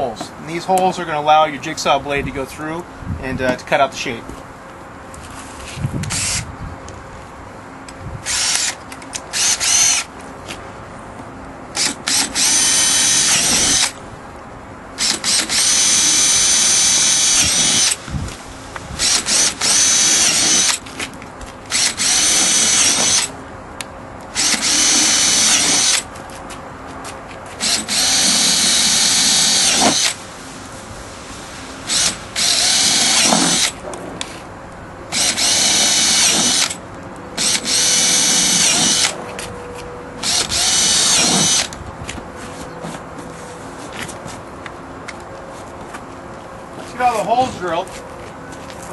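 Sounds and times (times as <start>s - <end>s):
cordless drill drilling: 6.1s - 6.5s, 8.2s - 10.1s, 11.8s - 14.0s, 15.0s - 18.1s, 19.0s - 20.8s, 21.7s - 23.3s, 24.3s - 26.1s, 27.6s - 30.2s, 31.8s - 33.8s, 35.1s - 36.8s, 37.4s - 39.1s, 40.2s - 41.7s.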